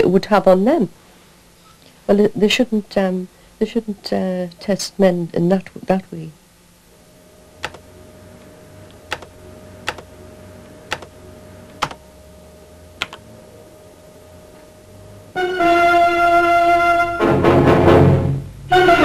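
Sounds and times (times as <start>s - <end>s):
low electrical hum: 0.0s - 19.0s
sharp clicks: 7.6s - 7.8s, 8.9s - 10.1s, 10.9s - 11.1s, 11.7s - 12.0s.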